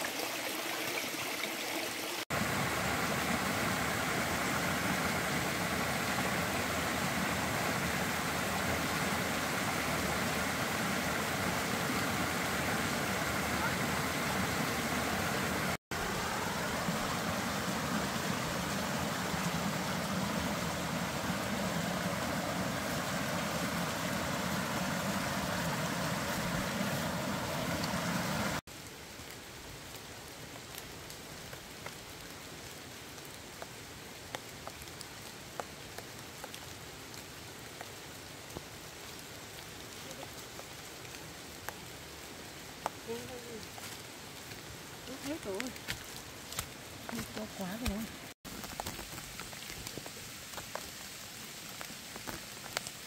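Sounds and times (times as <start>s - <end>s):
rain falling: 0.0s - 53.0s.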